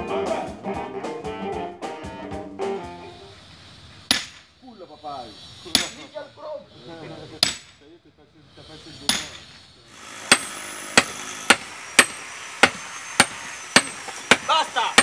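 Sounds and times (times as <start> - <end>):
sledgehammer striking metal stakes: 4.0 - 4.5, 5.7 - 6.2, 7.4 - 7.8, 9.0 - 9.5, 10.2 - 15.0.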